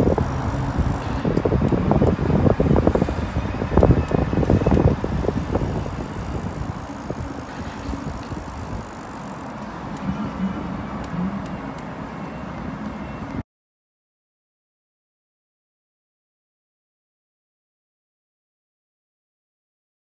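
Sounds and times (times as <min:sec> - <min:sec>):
wind buffeting microphone: 0:00.0 - 0:11.8
bike rolling on paved path: 0:00.0 - 0:13.0.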